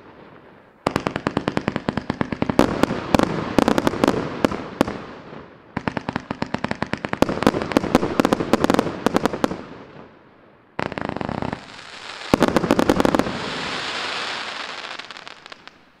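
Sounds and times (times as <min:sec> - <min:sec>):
fireworks hiss: 0:10.8 - 0:16.0.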